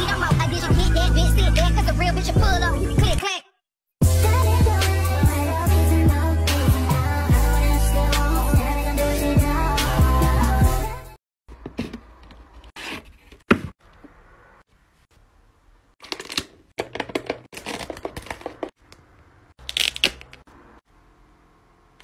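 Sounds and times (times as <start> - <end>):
drink pouch crinkling: 16.0 - 18.7, 19.6 - 20.4
plastic cup and lid crackling: 16.0 - 20.5.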